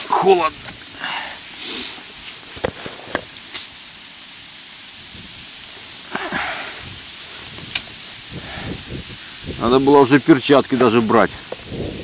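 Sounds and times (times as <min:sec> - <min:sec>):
short rustle: 0:00.0 - 0:11.8
wind blowing over microphone: 0:04.9 - 0:12.0.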